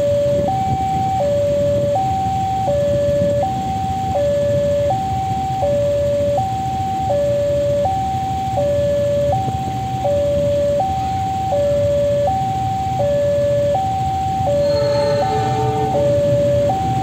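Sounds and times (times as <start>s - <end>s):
low engine rumble: 10.4s - 17.0s
level crossing two-tone chime: 14.4s - 17.0s.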